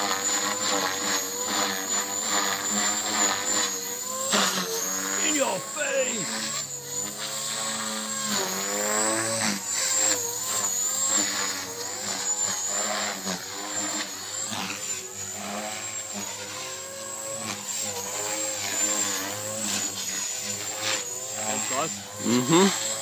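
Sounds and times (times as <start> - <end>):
rc helicopter rotor buzzing: 0.0 - 23.0
thin high whine: 4.2 - 6.8.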